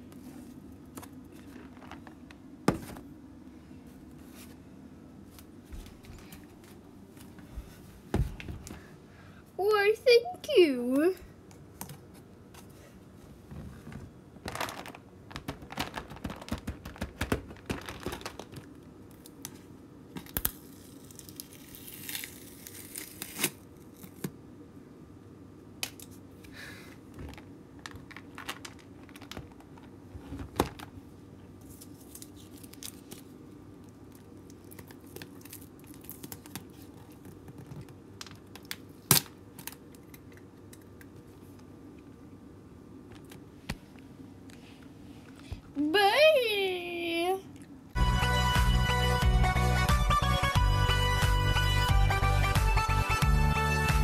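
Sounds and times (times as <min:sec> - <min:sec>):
plastic lid crinkling and tearing: 0:14.4 - 0:18.7
plastic tub clicks and rattles: 0:14.5 - 0:18.7.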